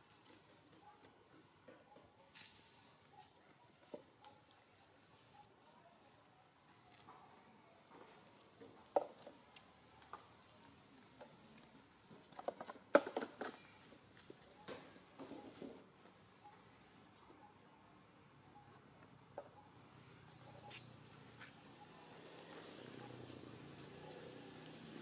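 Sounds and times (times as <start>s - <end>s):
quiet outdoor ambience: 0.0s - 25.0s.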